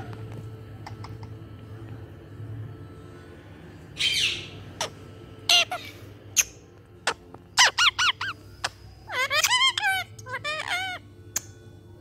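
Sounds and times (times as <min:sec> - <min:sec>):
parakeet squawk: 0:04.0 - 0:11.1
parakeet chirps and clicks: 0:06.4 - 0:11.6.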